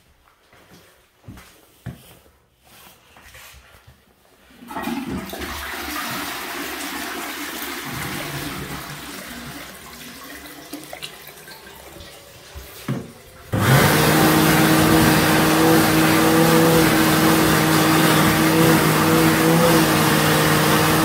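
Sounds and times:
tap water splashing into basin: 0:04.7 - 0:13.6.

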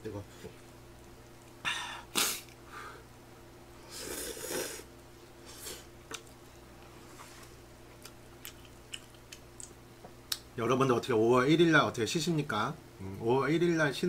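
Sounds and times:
person slurping noodles: 0:03.9 - 0:04.9
mouth clicks while chewing: 0:08.0 - 0:10.5.

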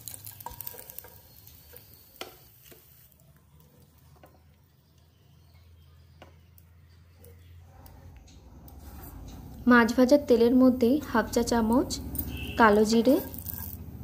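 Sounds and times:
spatula tapping and scraping pan: 0:00.0 - 0:03.0.

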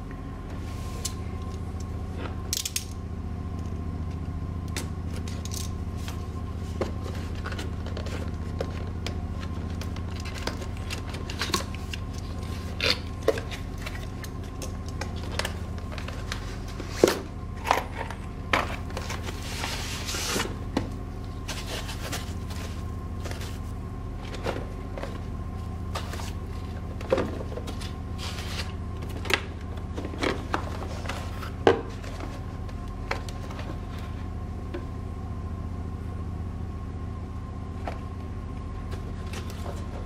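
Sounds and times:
steady low hum: 0:00.0 - 0:40.0
cardboard box rustling and scraping: 0:06.0 - 0:13.8, 0:17.9 - 0:25.3, 0:25.9 - 0:29.2, 0:30.0 - 0:34.2.

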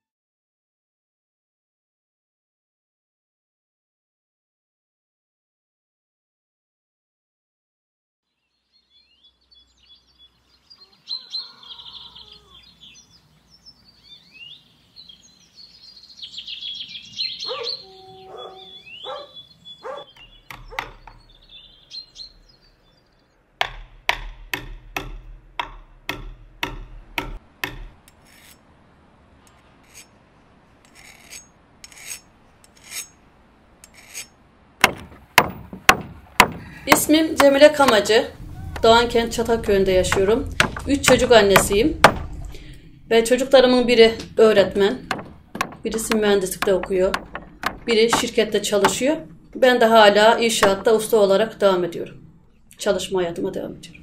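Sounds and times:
birds chirping: 0:08.3 - 0:28.1, 0:29.4 - 0:54.0
file rasping on saw teeth: 0:30.8 - 0:33.1, 0:33.8 - 0:34.3.

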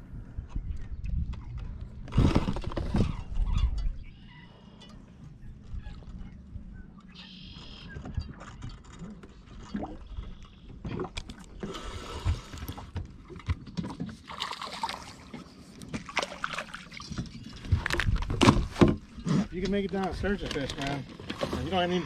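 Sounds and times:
rod and boat clicks and knocks: 0:04.8 - 0:11.8, 0:12.4 - 0:22.0
water splashing: 0:13.9 - 0:18.0.

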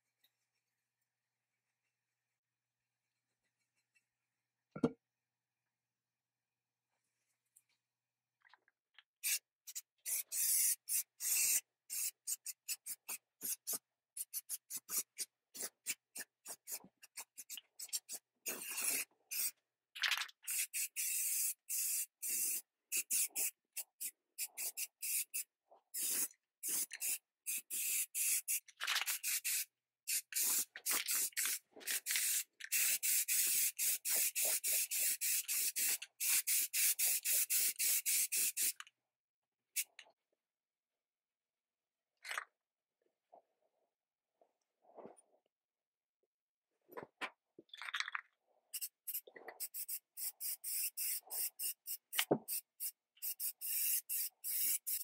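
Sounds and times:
spray paint hissing: 0:09.2 - 0:19.6, 0:20.5 - 0:38.8, 0:48.7 - 0:55.0.

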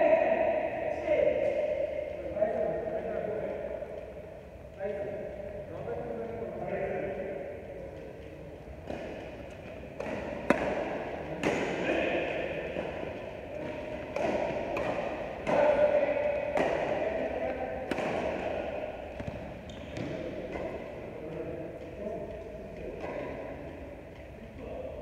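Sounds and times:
steady background noise: 0:00.0 - 0:25.0
racket smacking shuttlecock: 0:07.1 - 0:24.4.

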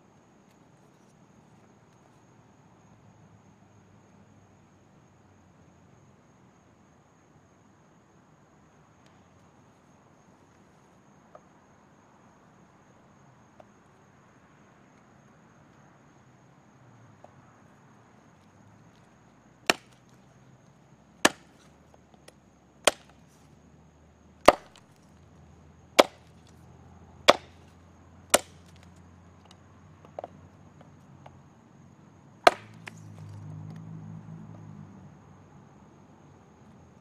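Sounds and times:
machete chopping wood: 0:19.6 - 0:20.2, 0:21.2 - 0:21.8, 0:22.8 - 0:23.4, 0:24.4 - 0:25.0, 0:26.0 - 0:26.6, 0:27.3 - 0:27.7, 0:28.3 - 0:28.9, 0:32.4 - 0:33.5.

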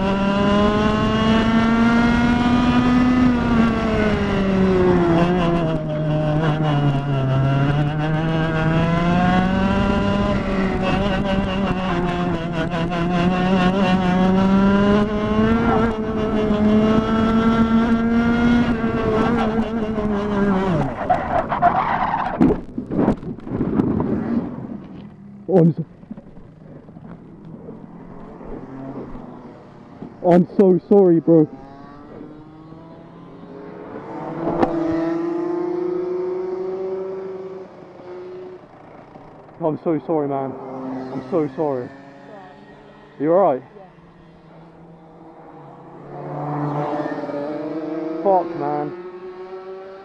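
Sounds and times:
two-stroke kart engine full throttle: 0:00.0 - 0:21.0, 0:46.1 - 0:50.0
kart engine passing: 0:00.0 - 0:50.0.

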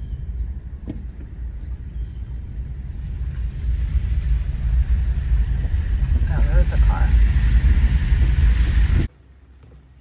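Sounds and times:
car rumble inside cabin: 0:00.0 - 0:10.0
hiss: 0:02.9 - 0:09.1.

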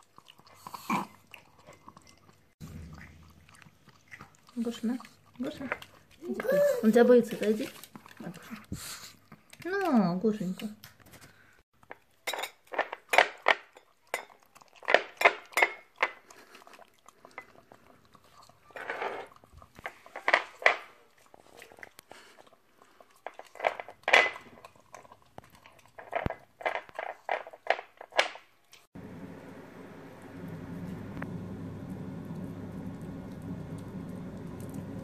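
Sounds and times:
animals licking food: 0:00.0 - 0:11.5, 0:14.0 - 0:20.2.

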